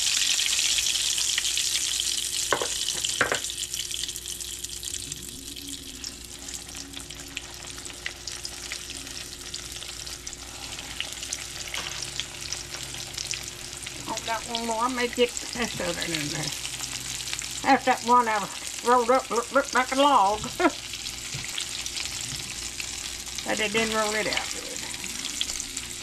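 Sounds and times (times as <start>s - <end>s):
oil sizzling and crackling: 0.0s - 26.0s.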